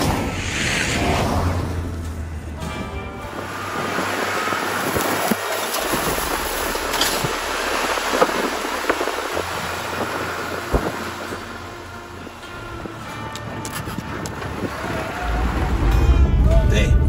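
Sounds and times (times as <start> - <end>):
tyre noise on dirt track: 0.0 - 16.5
wind rumble: 0.0 - 17.0
gravel clicking: 3.4 - 16.0.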